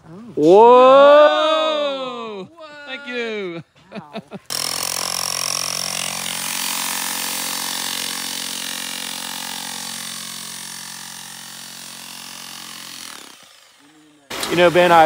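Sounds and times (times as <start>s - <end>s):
rotary hammer hammering ground: 4.5s - 15.0s.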